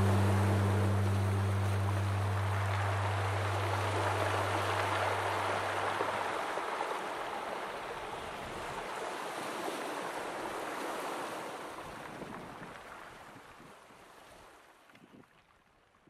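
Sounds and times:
low steady hum: 0.0s - 7.4s
rushing water noise: 0.0s - 14.4s.

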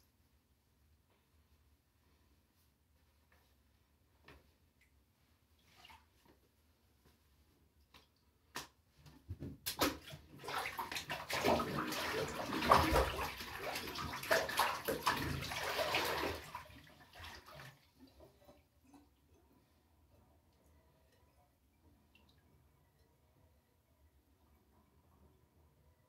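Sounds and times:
bath water splashing: 5.6s - 6.3s, 9.6s - 19.4s.

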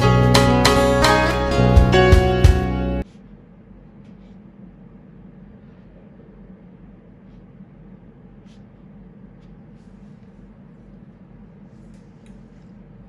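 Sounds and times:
low room hum: 3.0s - 13.0s
brush scratching on paper: 8.3s - 12.7s.

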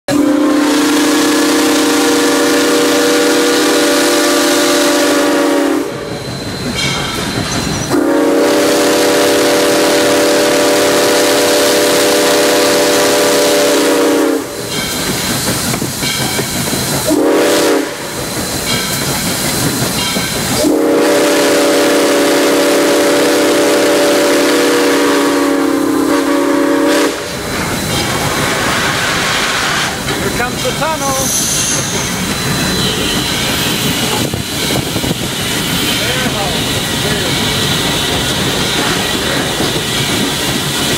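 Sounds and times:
steam whistle blowing: 0.1s - 6.3s, 7.9s - 14.7s, 17.1s - 18.2s, 20.5s - 27.5s
steam locomotive hiss: 0.1s - 40.9s.

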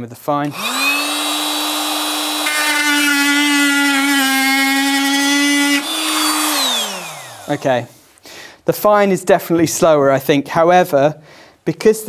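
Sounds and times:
blade cutting wood: 0.4s - 7.9s
oscillating multi-tool running: 0.5s - 7.6s.

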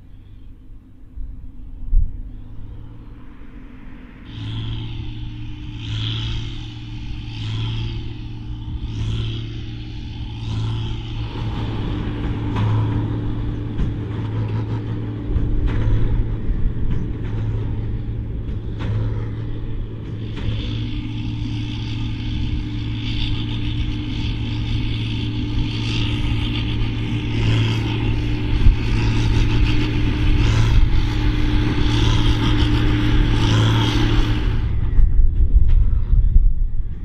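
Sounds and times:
tractor diesel engine running: 0.0s - 37.0s
high hissing rush: 2.2s - 10.4s.

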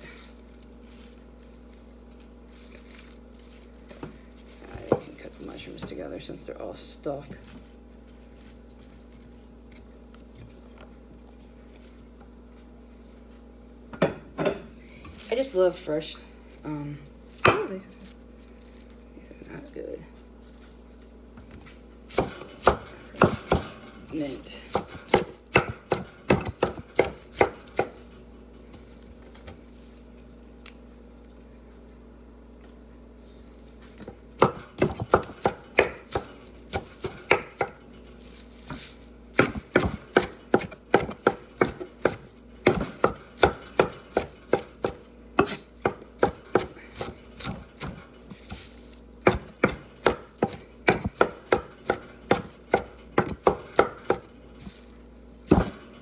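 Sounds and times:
knife chopping on wooden board: 22.1s - 23.7s, 24.7s - 28.0s, 34.4s - 37.8s, 39.4s - 48.6s, 49.2s - 54.3s.

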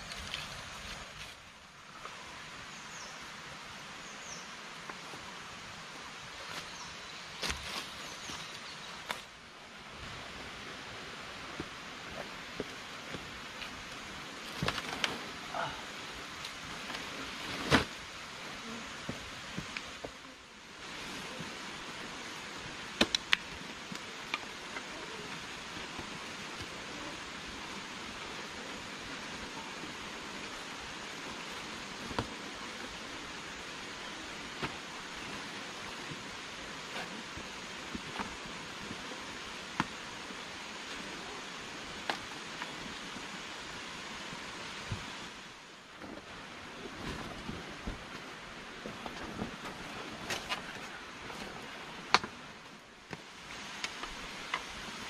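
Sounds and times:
leaf rustling: 0.0s - 3.2s, 4.4s - 55.0s
forest background hiss: 0.0s - 55.0s
leaves crackling and snapping: 13.6s - 15.2s, 22.9s - 25.0s.

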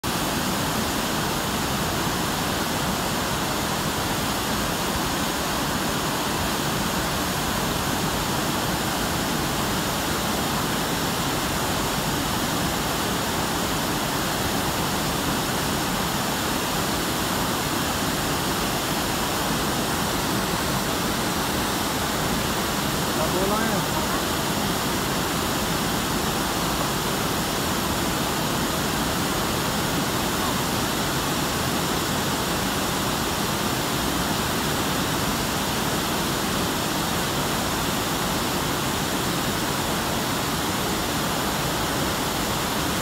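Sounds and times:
river water rushing over weir: 0.0s - 43.0s.

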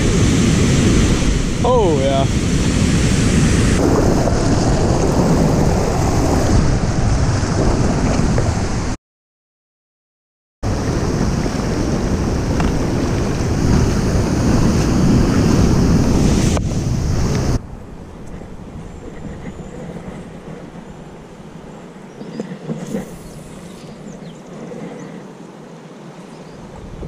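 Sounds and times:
whitewater rushing: 0.0s - 7.9s
wind buffeting microphone: 0.0s - 9.0s, 10.6s - 27.0s.

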